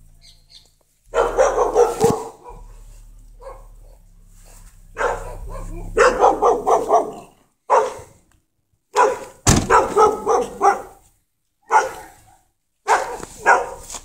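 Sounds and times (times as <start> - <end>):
dog barking: 1.1 - 4.1, 4.9 - 8.2, 8.9 - 11.0, 11.6 - 14.0
low thump: 1.1 - 7.1, 9.4 - 10.0.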